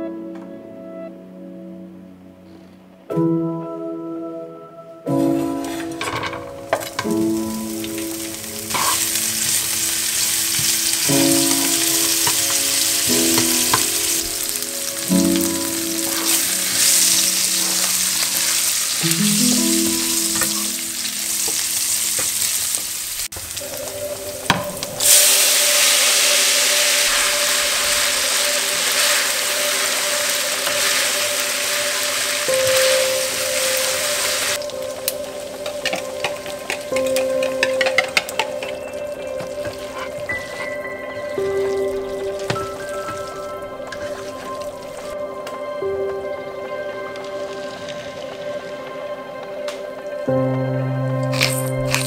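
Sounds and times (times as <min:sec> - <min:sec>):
bacon sizzling in frying pan: 0:07.1 - 0:40.6.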